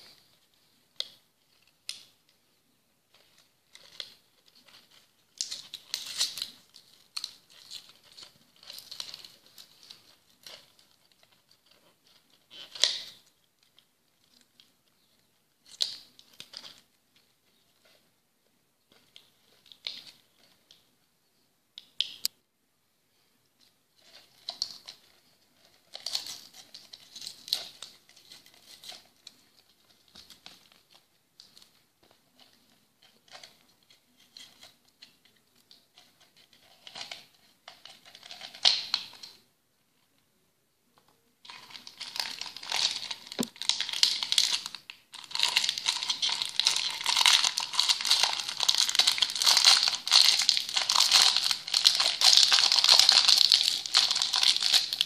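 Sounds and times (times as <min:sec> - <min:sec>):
plastic wrapping crinkling: 0:03.1 - 0:18.0, 0:24.0 - 0:39.4, 0:41.4 - 0:55.0.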